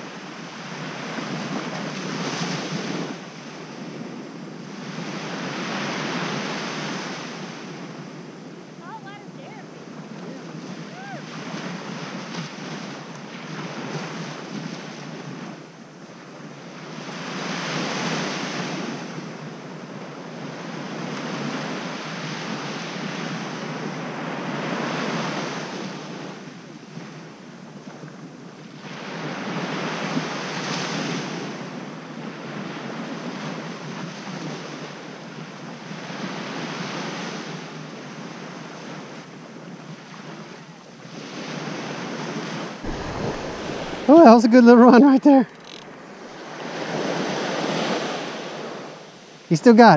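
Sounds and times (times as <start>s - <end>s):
surf breaking on sandy beach: 41.4s - 49.1s.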